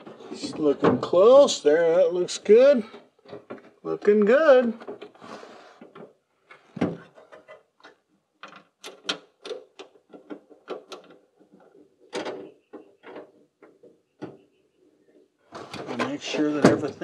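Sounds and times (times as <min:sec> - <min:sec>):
hand tools clicking and knocking: 0:05.8 - 0:14.4.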